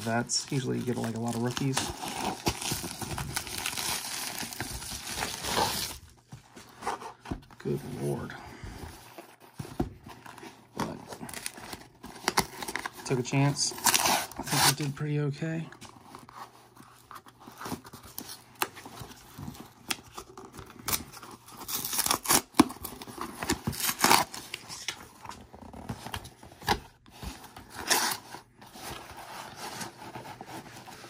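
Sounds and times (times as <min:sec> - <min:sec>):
packing tape tearing: 0:13.8 - 0:14.9, 0:19.9 - 0:25.0, 0:27.7 - 0:28.3.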